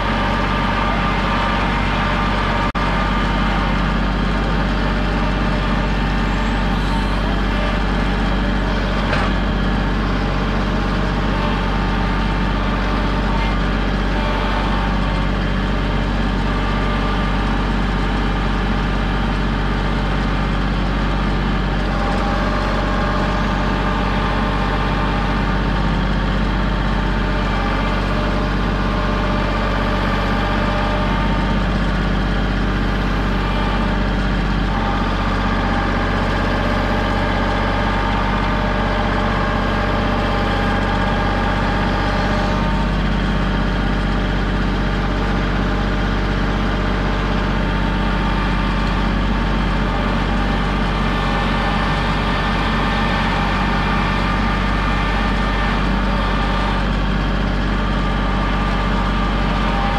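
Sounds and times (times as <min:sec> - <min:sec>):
tractor diesel engine running: 0:00.0 - 0:59.9
clunk: 0:08.9 - 0:09.6.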